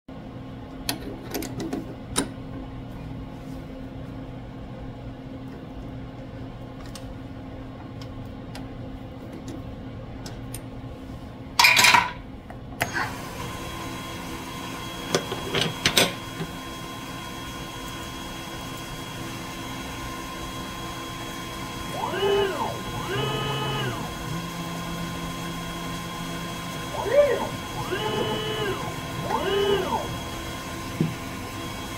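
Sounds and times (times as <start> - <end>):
lathe spindle whine: 12.9 - 31.9
axis motors whining: 19.7 - 31.9.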